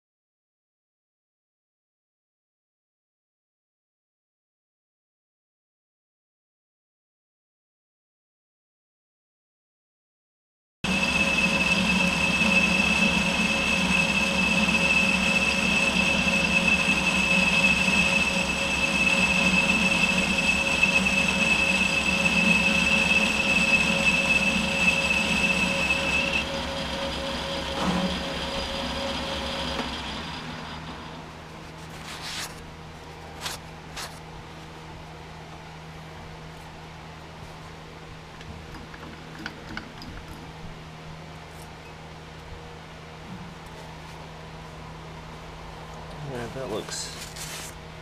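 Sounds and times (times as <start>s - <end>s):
lathe cutting whine: 10.9s - 31.5s
lathe motor hum: 10.9s - 31.6s.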